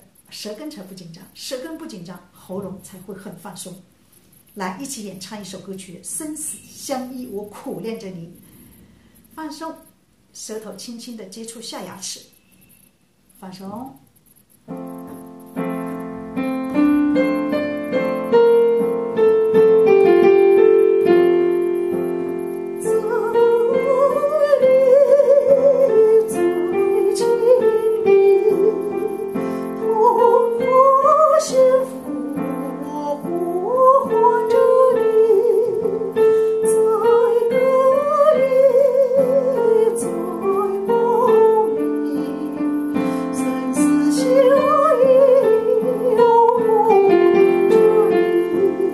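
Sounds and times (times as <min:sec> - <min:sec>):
piano ballad backing track: 0:14.7 - 0:48.9
woman singing with vibrato: 0:22.2 - 0:48.9.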